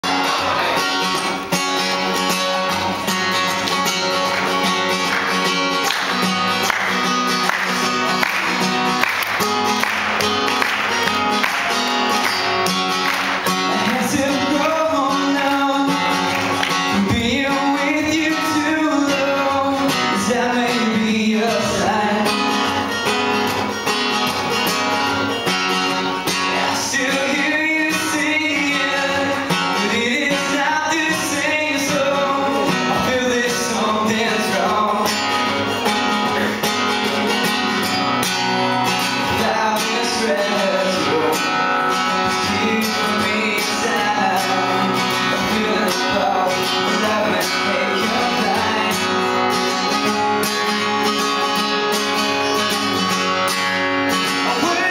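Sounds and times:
acoustic guitar strumming: 0:00.0 - 0:54.9
man singing: 0:11.0 - 0:23.9, 0:24.6 - 0:54.9.

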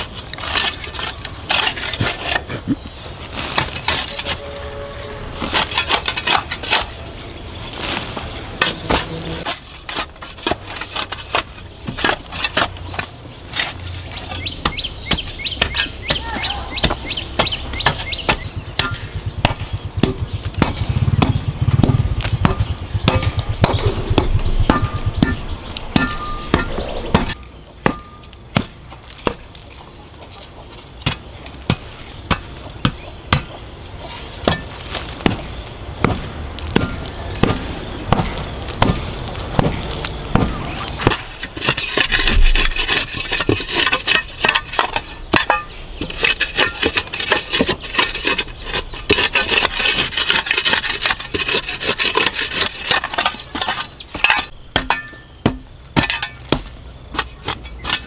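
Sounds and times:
shovel scraping stony soil: 0:00.0 - 0:29.4, 0:33.3 - 0:58.0.

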